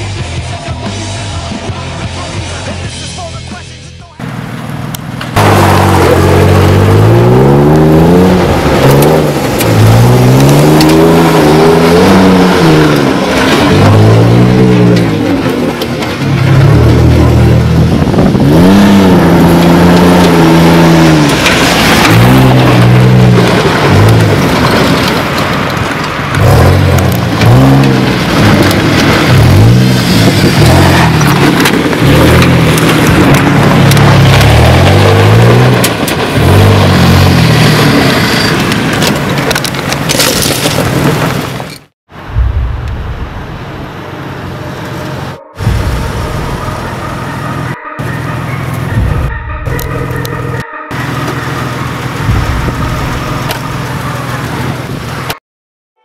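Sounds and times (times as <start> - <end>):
truck engine revving: 4.2 - 39.4, 42.2 - 55.4
pickup engine revving hard: 5.4 - 15.2, 16.5 - 24.2
tyres spinning on loose dirt: 8.1 - 41.8.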